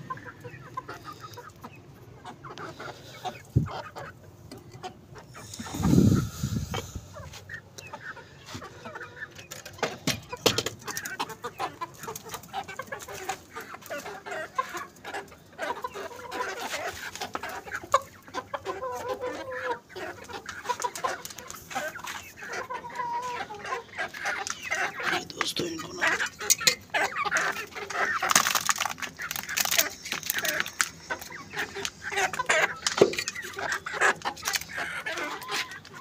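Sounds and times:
chickens clucking: 0:00.0 - 0:36.0.

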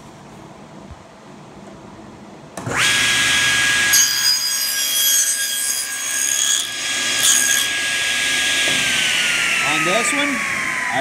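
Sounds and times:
table saw motor whine: 0:02.6 - 0:11.0
saw blade cutting wood: 0:02.7 - 0:11.0.

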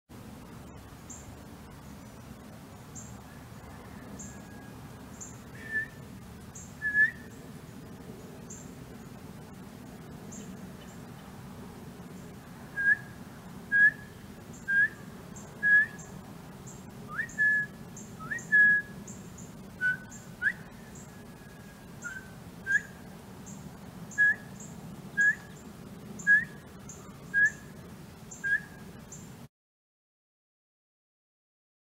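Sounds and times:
faint high chirps: 0:00.6 - 0:09.6, 0:12.1 - 0:29.4
man whistling quail calls: 0:05.5 - 0:06.0, 0:06.8 - 0:07.3, 0:12.8 - 0:13.1, 0:13.7 - 0:15.0, 0:15.6 - 0:16.1, 0:17.1 - 0:19.0, 0:19.8 - 0:23.0, 0:24.1 - 0:24.6, 0:25.2 - 0:25.6, 0:26.2 - 0:27.7, 0:28.3 - 0:28.8.

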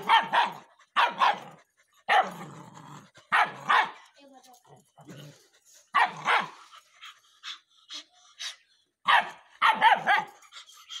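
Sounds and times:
high dog yaps: 0:00.0 - 0:01.4, 0:09.1 - 0:10.4
dogs barking: 0:00.0 - 0:01.5, 0:02.1 - 0:02.4, 0:03.3 - 0:04.0, 0:06.0 - 0:06.6, 0:09.1 - 0:10.4.

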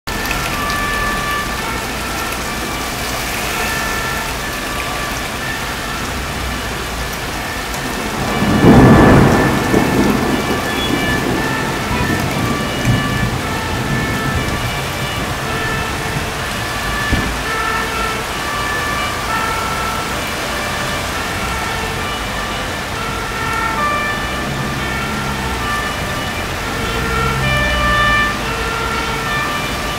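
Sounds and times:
heavy rain pouring: 0:00.1 - 0:29.9
thunder clap and rumble: 0:06.1 - 0:29.9.

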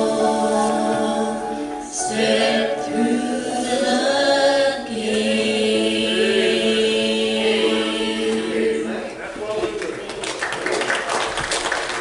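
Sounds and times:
group singing in harmony: 0:00.0 - 0:09.2.

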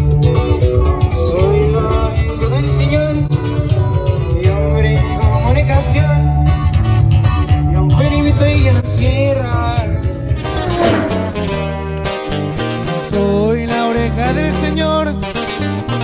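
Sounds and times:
heavy bass line: 0:10.4 - 0:11.6.

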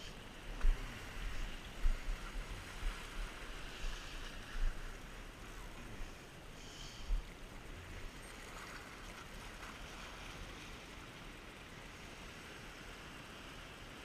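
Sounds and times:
sea water fizzing over rocks: 0:07.3 - 0:14.0.

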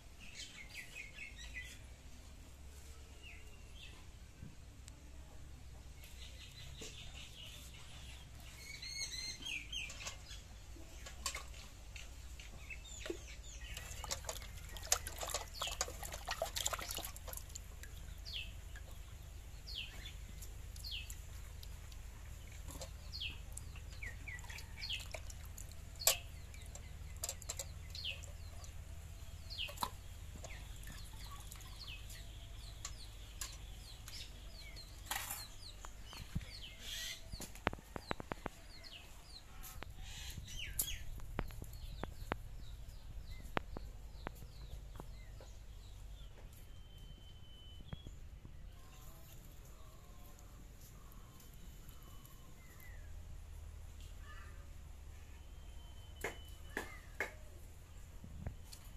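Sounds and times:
low steady hum: 0:00.0 - 0:58.9
birds chirping: 0:06.0 - 0:58.9.

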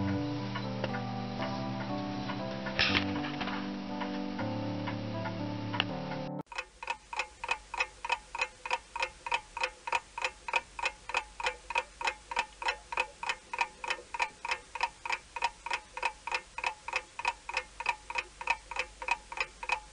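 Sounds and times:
clock ticking: 0:04.9 - 0:19.9.

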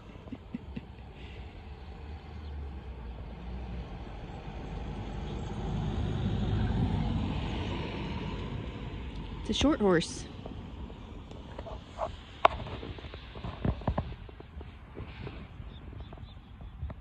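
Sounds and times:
vehicle passing with tyre hiss: 0:01.0 - 0:13.4.

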